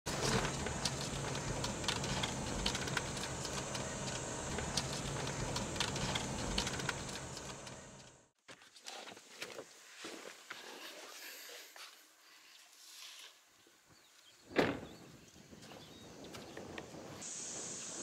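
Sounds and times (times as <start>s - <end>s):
car engine and road noise: 0.1s - 8.3s.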